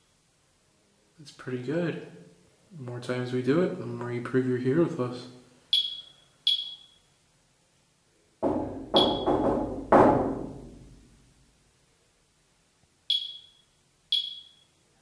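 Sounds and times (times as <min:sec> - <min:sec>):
short high electronic beeps: 0:05.8 - 0:07.1, 0:13.1 - 0:14.8
loud echoing knocks: 0:08.4 - 0:11.0.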